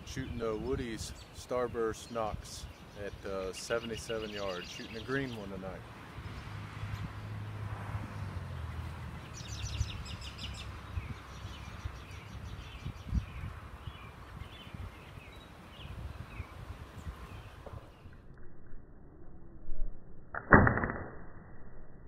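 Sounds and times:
birds calling: 0:00.0 - 0:18.2.

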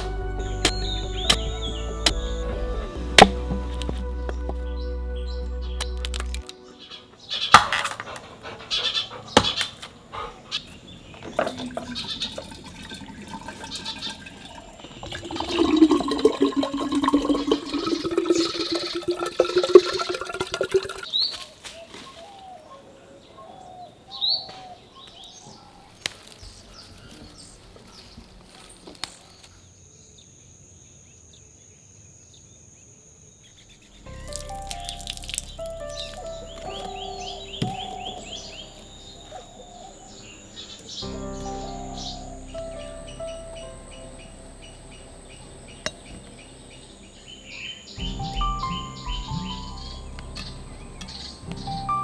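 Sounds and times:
bird chirps: 0:00.0 - 0:52.0
liquid pouring into glass bottle: 0:11.4 - 0:21.1, 0:34.2 - 0:36.3.

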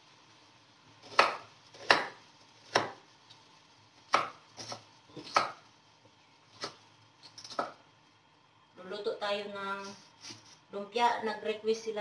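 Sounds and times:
knife chopping on wooden board: 0:01.0 - 0:03.0, 0:04.1 - 0:05.6, 0:07.4 - 0:07.8.

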